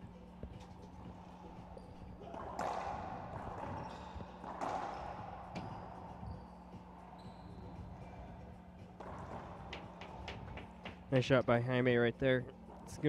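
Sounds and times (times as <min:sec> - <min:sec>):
ball strikes echoing off walls: 0:00.4 - 0:06.4, 0:08.8 - 0:11.1
sneaker squeaks on hardwood: 0:01.6 - 0:08.3.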